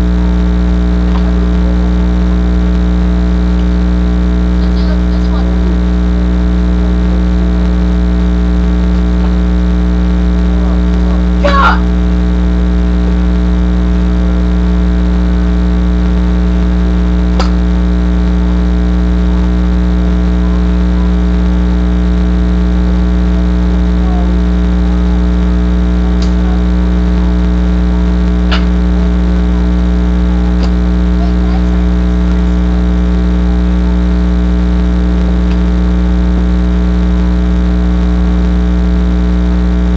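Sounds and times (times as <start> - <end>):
buzzy electrical hum: 0.0 - 39.9.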